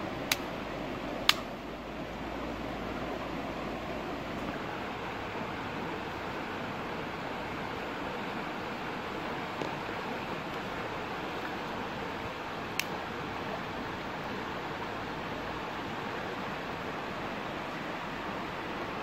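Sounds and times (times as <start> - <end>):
stream flowing over rocks: 0.0 - 19.0
sharp click: 0.3 - 0.5, 1.2 - 1.5.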